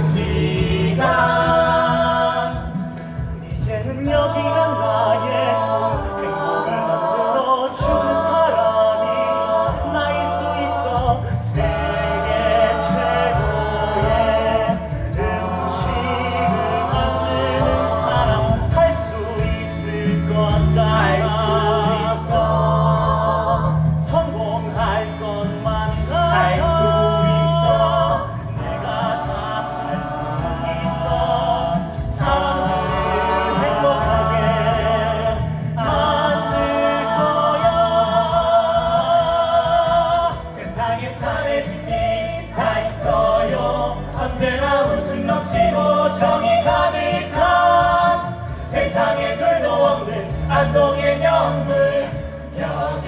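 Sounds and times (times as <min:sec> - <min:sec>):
instrumental accompaniment: 0:00.0 - 0:53.0
man singing: 0:03.4 - 0:05.6.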